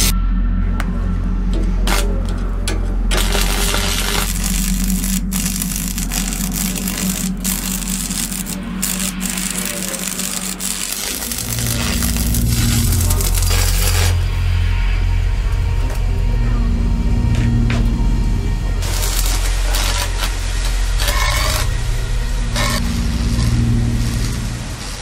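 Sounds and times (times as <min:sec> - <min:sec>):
low steady tones: 0:00.0 - 0:25.0
welding arc crackling: 0:01.8 - 0:02.4, 0:03.0 - 0:14.5, 0:18.6 - 0:25.0.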